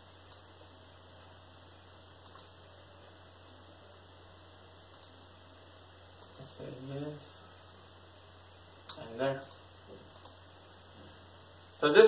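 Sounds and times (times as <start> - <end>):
low hum and hiss: 0.0 - 12.0
soft computer clicks: 0.2 - 0.6, 2.2 - 2.6, 4.9 - 5.2, 6.2 - 6.6, 8.8 - 10.5.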